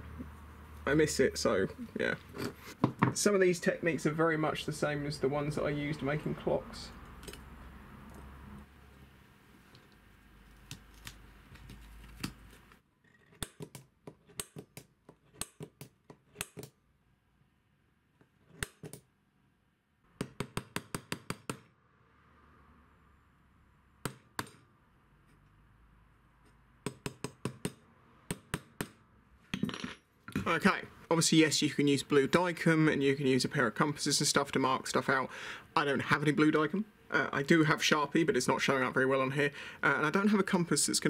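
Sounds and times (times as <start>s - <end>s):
hammer tapping punch on steel: 26.8s - 29.0s.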